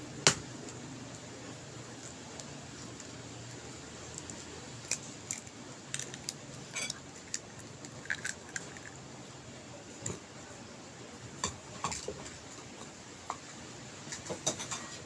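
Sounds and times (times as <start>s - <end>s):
eggshell cracking clicks: 7.2s - 9.0s.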